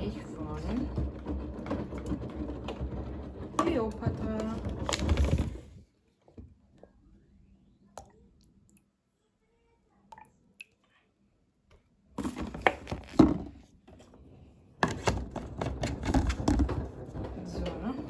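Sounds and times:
plastic bottles rustling and knocking: 0.0 - 5.8, 12.1 - 14.2, 14.8 - 18.0.

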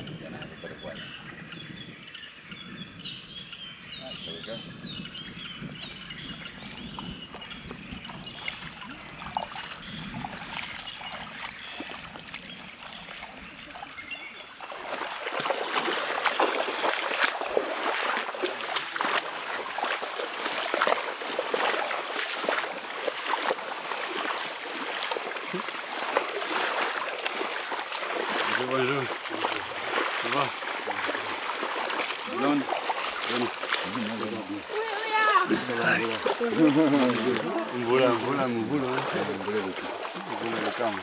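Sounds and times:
bird chirps: 0.0 - 14.6
high insect drone: 4.6 - 41.0
water splashing and sloshing: 5.0 - 41.0.

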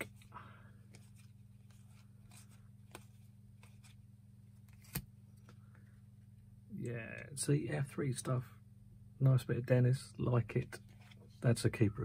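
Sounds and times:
steady low hum: 0.0 - 12.0
cards clicking: 4.6 - 5.5.

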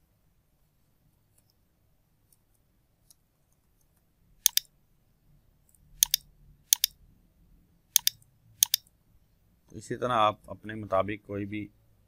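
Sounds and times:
computer mouse clicking: 3.8 - 4.7, 5.7 - 7.0, 8.0 - 8.9.

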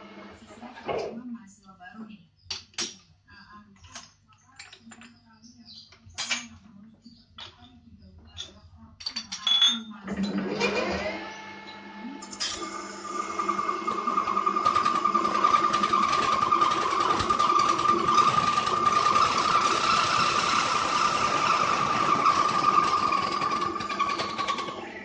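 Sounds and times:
lathe running: 0.0 - 1.1, 10.1 - 25.0.

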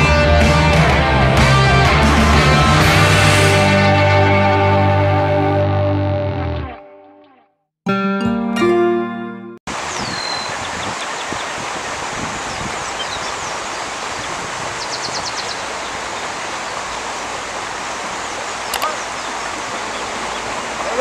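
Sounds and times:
steady rushing outdoor noise: 0.0 - 5.1, 9.7 - 21.0.

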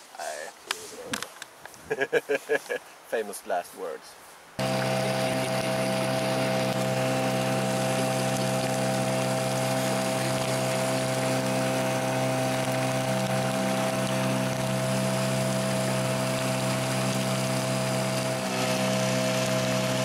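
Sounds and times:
outboard motor running: 4.6 - 20.0
water hissing: 4.6 - 20.0.

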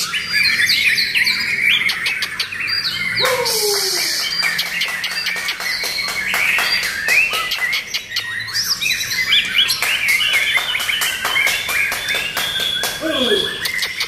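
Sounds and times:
bird singing whistled notes: 0.0 - 14.0
bird clicking notes: 9.8 - 14.0.

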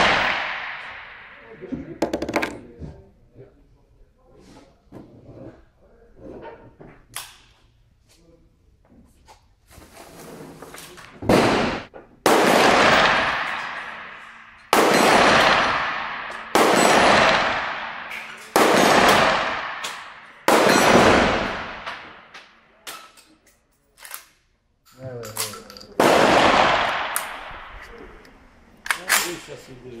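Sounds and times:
shotgun shots echoing: 0.0 - 2.0, 11.2 - 22.6, 26.0 - 28.2.

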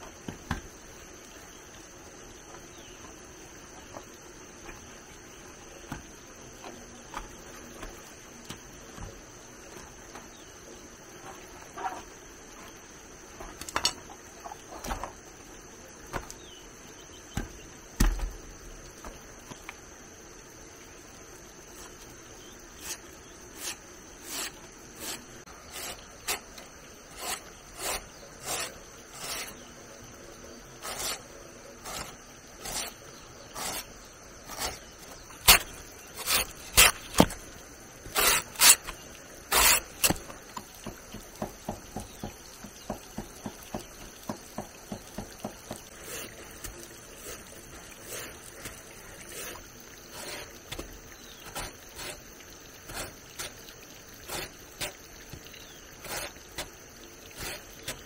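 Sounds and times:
high insect drone: 0.0 - 58.0
blade shaving wood: 22.7 - 29.7, 30.8 - 37.4, 38.0 - 40.4, 56.0 - 56.7.

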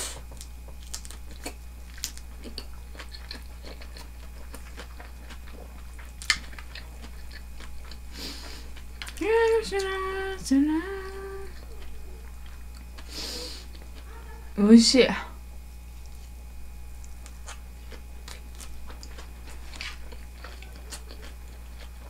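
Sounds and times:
person chewing crunchy food: 0.0 - 14.6, 15.8 - 22.0
short pitched hums: 8.1 - 14.6.

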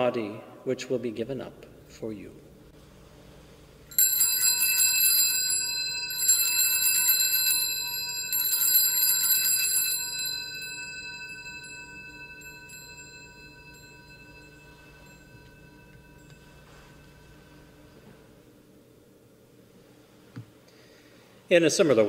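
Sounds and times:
altar bells jangling: 3.9 - 17.9.

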